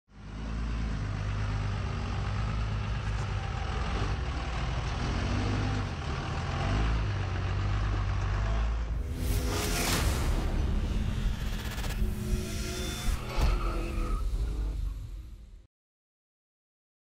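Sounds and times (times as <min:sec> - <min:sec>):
diesel truck engine running: 0:00.1 - 0:13.0.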